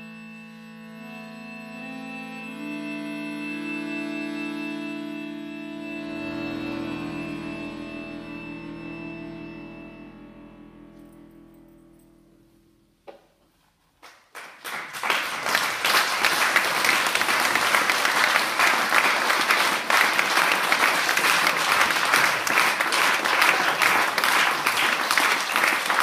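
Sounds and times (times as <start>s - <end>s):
audience applauding: 14.0s - 26.0s.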